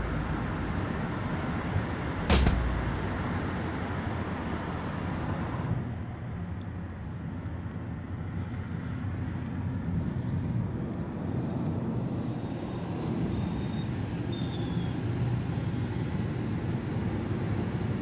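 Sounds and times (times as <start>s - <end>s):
car engine and tyre noise: 0.0s - 18.0s.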